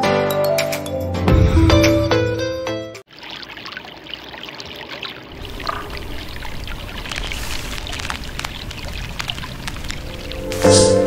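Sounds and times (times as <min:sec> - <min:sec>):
stream rushing over rocks: 0:03.1 - 0:11.0.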